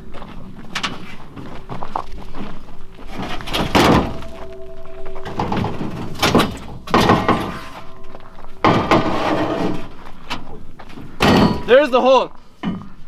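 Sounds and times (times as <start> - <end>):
metal cylinder knocking and scraping: 3.4 - 10.0.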